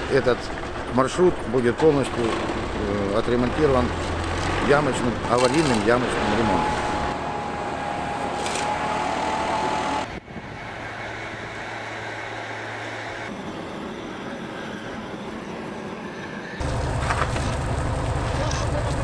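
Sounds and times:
loud low-pitched engine noise: 0.0 - 19.0
backpack blower engine whining: 2.2 - 10.2
steady machine hum: 5.1 - 19.0.

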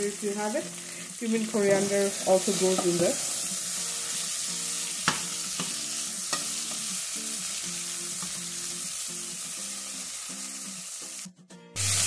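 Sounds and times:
faint background music: 0.0 - 12.0
vegetables sizzling in hot oil: 0.0 - 12.0
spoon knocking against pan: 5.0 - 6.9.

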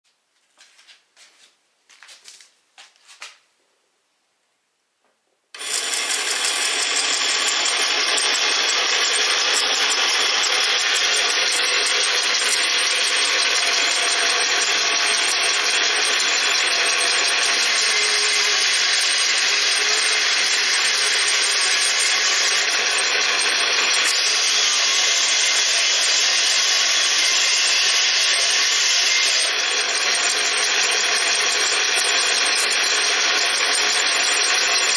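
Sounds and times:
model band saw motor running: 5.5 - 34.9.

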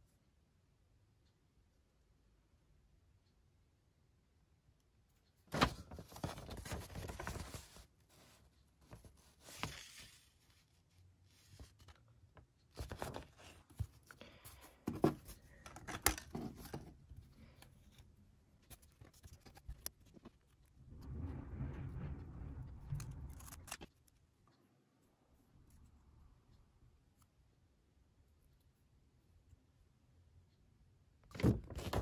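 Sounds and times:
paper pages rustling: 5.5 - 12.1, 12.8 - 18.0, 18.6 - 20.7.

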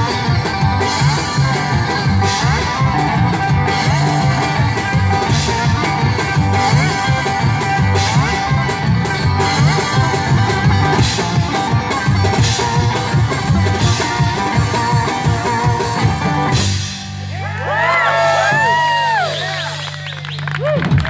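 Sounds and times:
live rock and roll band: 0.0 - 21.0
audience whooping and cheering: 17.3 - 21.0.

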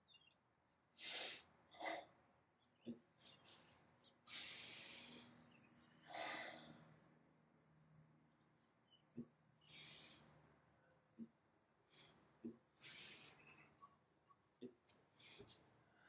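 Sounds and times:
person breathing hard: 1.0 - 2.1, 4.3 - 7.0, 9.6 - 10.3, 12.8 - 13.7.

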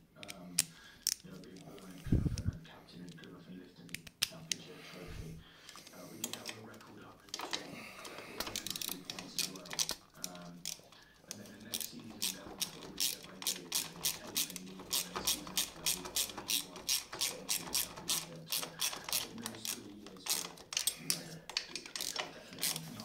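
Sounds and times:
hand ratchet clicking: 7.4 - 23.0.

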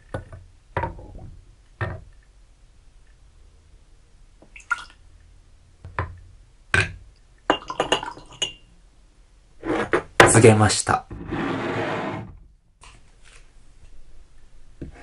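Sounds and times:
liquid pouring and dripping: 4.4 - 5.3, 6.9 - 8.6
cup clinking against glass: 7.5 - 8.6.

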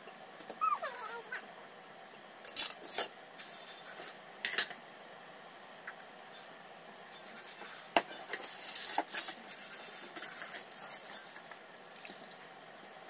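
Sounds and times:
metal plates and spoon clinking: 2.5 - 4.8.

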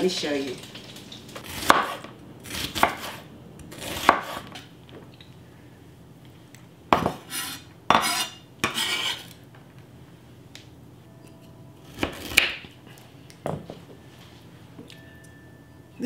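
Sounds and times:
knife scraping cutting board: 1.4 - 4.6, 7.0 - 9.4.

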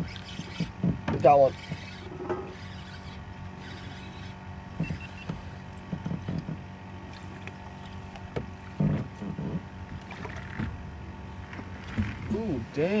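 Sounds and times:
steady low hum: 0.0 - 13.0
dull knocks in a boat: 0.4 - 2.5, 4.8 - 6.7, 7.4 - 10.8, 11.5 - 12.4.

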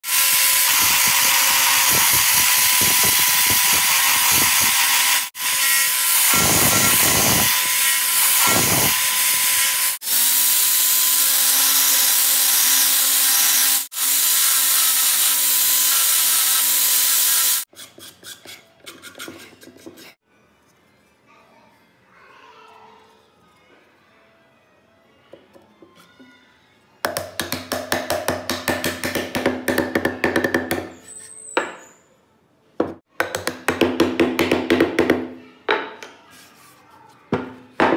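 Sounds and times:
power sander grinding wood: 0.1 - 17.7.

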